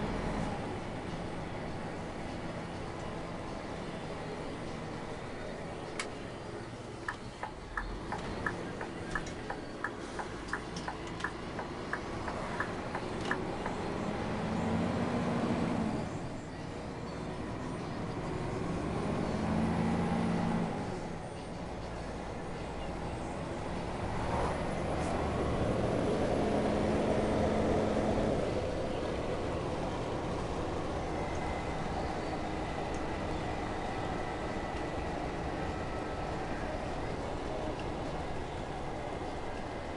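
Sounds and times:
diesel engine running: 0:00.0 - 0:39.9
turn signal ticking: 0:07.1 - 0:13.8.

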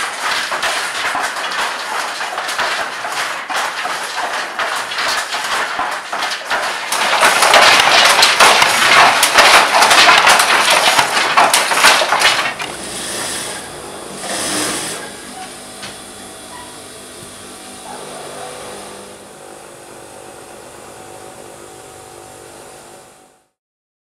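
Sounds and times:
wooden handloom clacking: 0:00.0 - 0:15.6.

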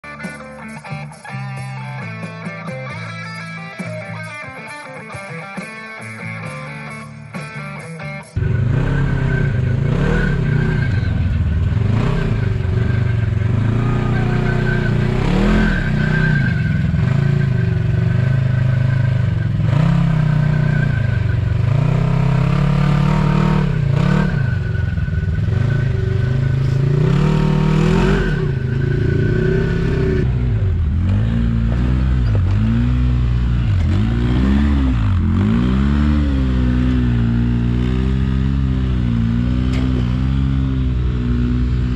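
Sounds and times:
engines revving: 0:08.4 - 0:41.9
clunks: 0:31.0 - 0:32.9, 0:39.6 - 0:40.4.

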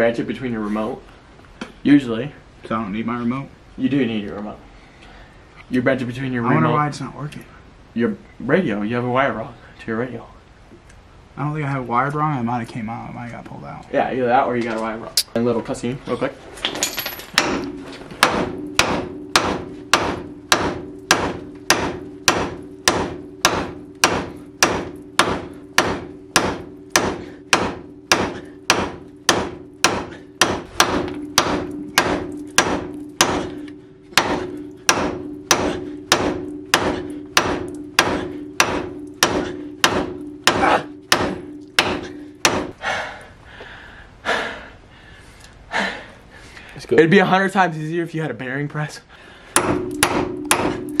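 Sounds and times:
metal ringing: 0:16.6 - 0:42.8, 0:49.6 - 0:51.0
hammer blows on steel: 0:17.4 - 0:42.8.

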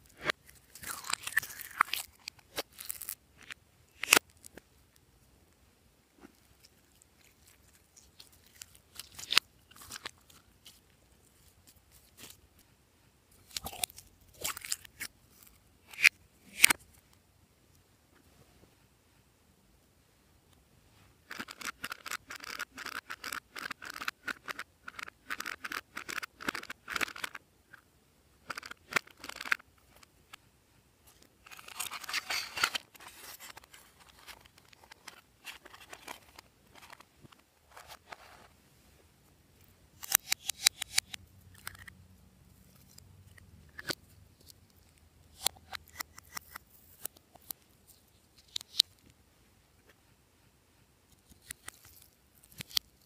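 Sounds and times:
crinkly rustling: 0:06.2 - 0:12.4, 0:31.1 - 0:38.6
plastic tool scraping eyeshadow: 0:21.3 - 0:27.4, 0:28.4 - 0:30.0, 0:31.4 - 0:37.1, 0:43.7 - 0:48.9.

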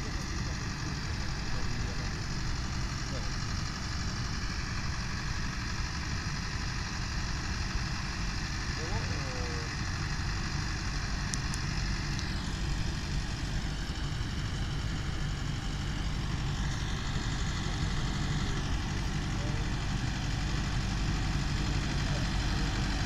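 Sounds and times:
tractor diesel engine running: 0:00.0 - 0:23.0.

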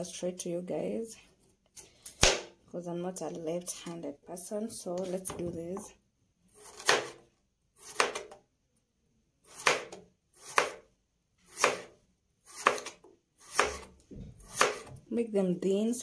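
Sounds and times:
knife slicing potatoes on board: 0:06.5 - 0:07.2, 0:07.8 - 0:08.4, 0:09.4 - 0:15.0.

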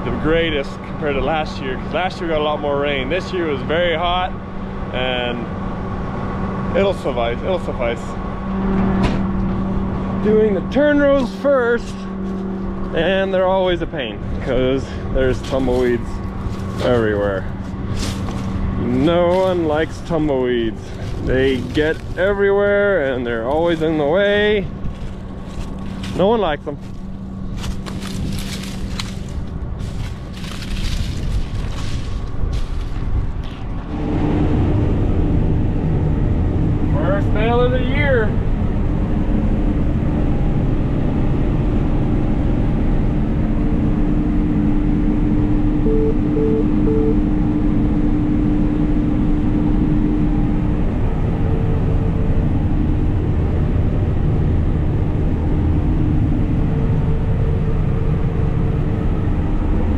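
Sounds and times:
harvester rumbling: 0:00.0 - 0:59.9
steady hum: 0:00.0 - 0:59.9
gusty rushing noise: 0:27.3 - 0:45.4.

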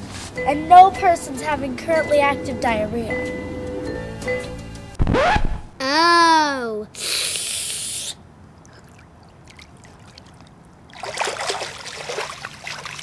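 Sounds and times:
loud hissing burst: 0:07.0 - 0:08.2
pool water splashing: 0:07.5 - 0:13.0.

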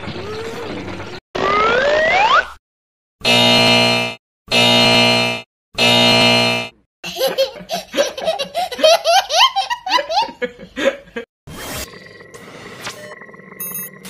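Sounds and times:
buzzer: 0:03.2 - 0:06.8
baby laughing: 0:07.0 - 0:10.5
faint electronic beeping: 0:11.8 - 0:14.0.

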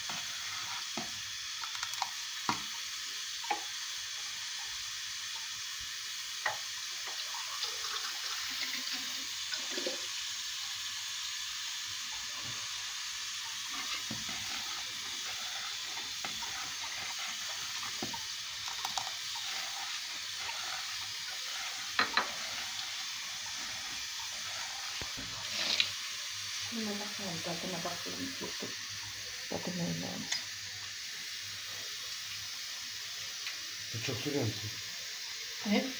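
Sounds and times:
steady hiss: 0:00.0 - 0:35.9
metal ladle scraping pot: 0:13.7 - 0:25.9.

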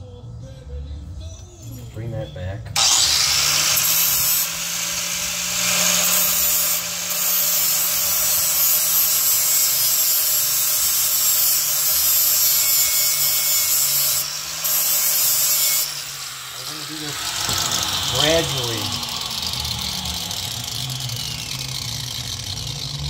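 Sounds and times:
welding hiss: 0:02.9 - 0:20.2.

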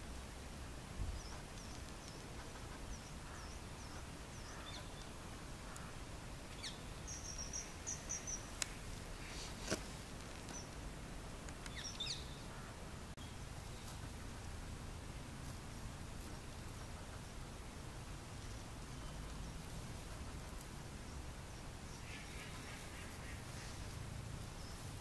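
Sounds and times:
outdoor background hum: 0:00.0 - 0:25.0
bird chirps and twittering: 0:01.1 - 0:05.2, 0:06.5 - 0:08.8, 0:11.7 - 0:12.5.

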